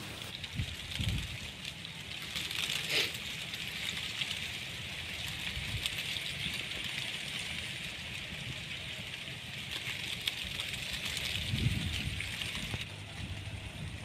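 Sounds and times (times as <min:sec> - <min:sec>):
wind rumbling on microphone: 0:00.0 - 0:14.0.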